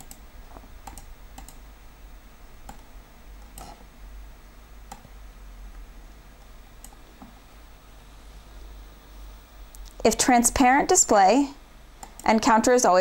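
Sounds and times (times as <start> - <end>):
computer mouse clicks: 0.0 - 1.6, 2.6 - 3.8, 4.9 - 5.1, 6.8 - 7.4, 12.0 - 12.4
low steady hum: 0.0 - 13.0.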